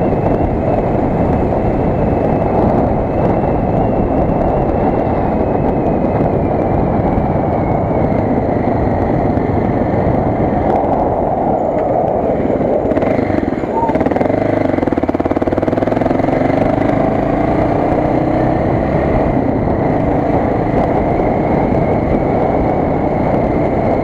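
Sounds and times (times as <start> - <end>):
motorcycle engine riding: 0.0 - 24.0
wind and road noise: 0.0 - 24.0
faint high whine: 13.5 - 14.2.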